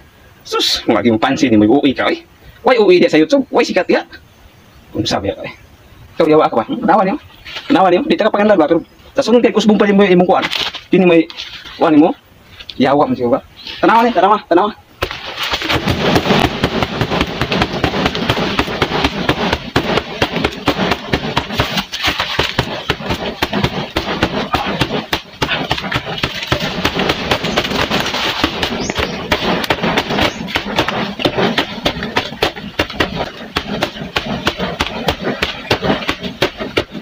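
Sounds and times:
fists striking banana plant trunk: 15.0s - 37.0s.

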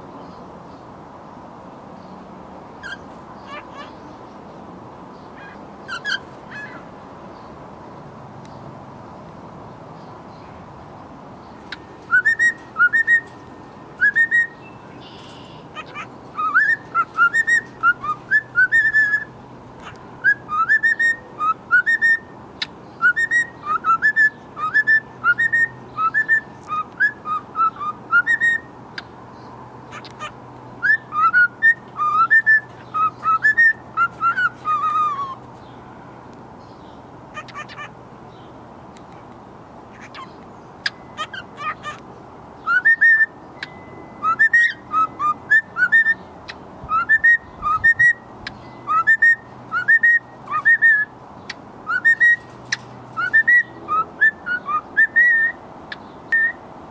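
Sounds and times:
bird chirps: 5.1s - 7.6s, 11.4s - 35.9s, 39.9s - 56.6s
cockatiel whistling: 12.1s - 13.3s, 14.0s - 14.6s, 15.8s - 19.3s, 20.2s - 22.2s, 23.0s - 28.6s, 42.7s - 43.3s, 44.2s - 46.2s, 48.9s - 51.1s, 51.9s - 52.4s.

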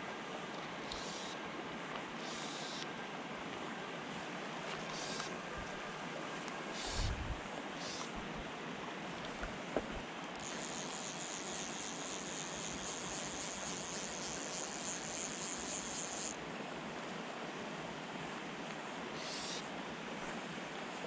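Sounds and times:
fly reel ratchet buzzing: 0.8s - 1.4s, 4.9s - 5.3s, 6.8s - 7.2s, 10.3s - 16.4s
steady hiss: 0.8s - 1.4s, 2.2s - 2.9s, 4.9s - 5.3s, 6.7s - 8.3s.

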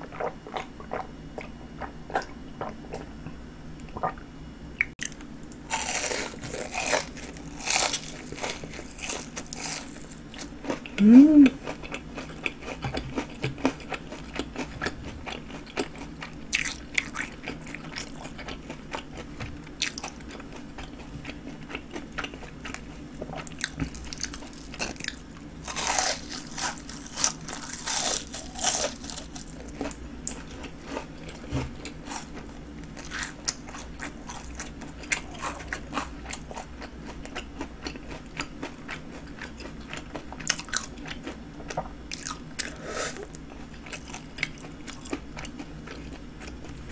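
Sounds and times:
crunching fried food: 5.0s - 11.0s, 11.6s - 46.9s.

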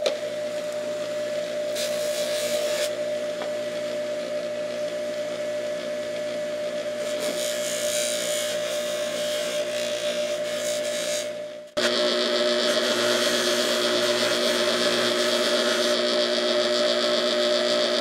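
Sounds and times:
bench buffer humming: 0.0s - 18.0s
metal part scrubbing on polishing wheel: 1.7s - 2.9s, 7.0s - 11.4s.

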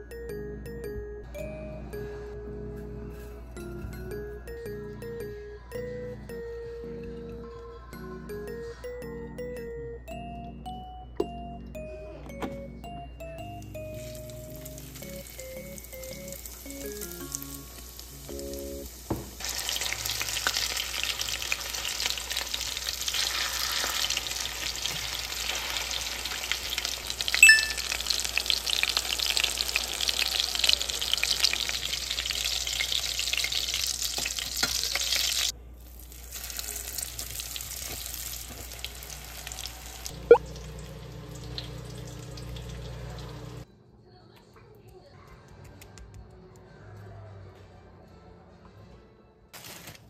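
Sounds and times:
chicken frying in oil: 14.2s - 43.6s.

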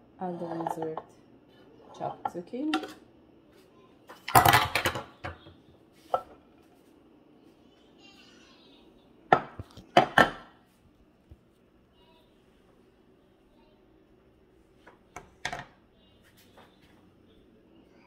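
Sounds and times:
knocks on a kitchen counter: 9.3s - 10.5s.

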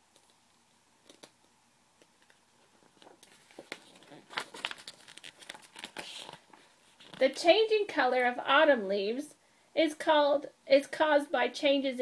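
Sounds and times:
paper page rustling: 2.7s - 7.4s.

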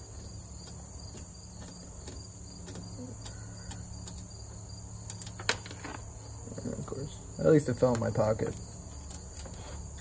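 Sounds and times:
crickets trilling: 0.0s - 10.0s
faint ticks of wiring hardware: 0.6s - 4.4s.

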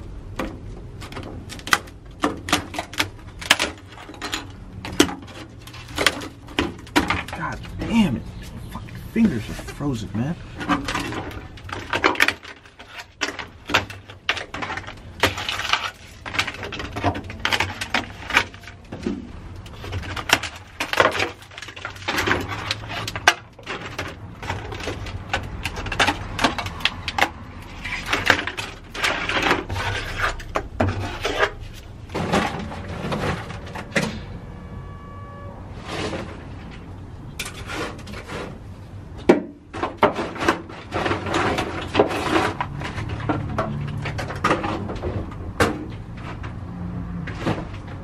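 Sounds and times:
pieces clattering onto metal: 1.0s - 7.6s.

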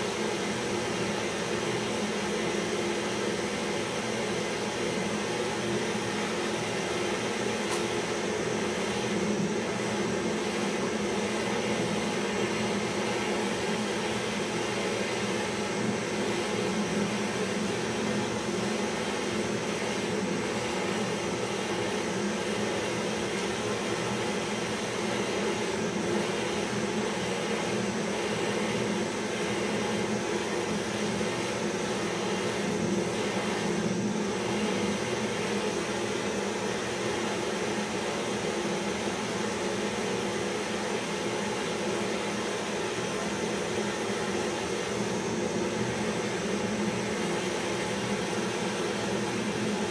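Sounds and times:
gas torch hissing: 0.0s - 39.5s.

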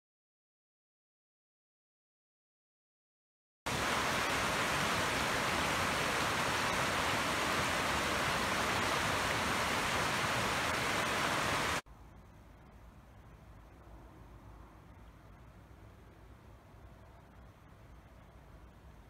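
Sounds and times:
stream rushing over boulders: 3.7s - 11.8s.

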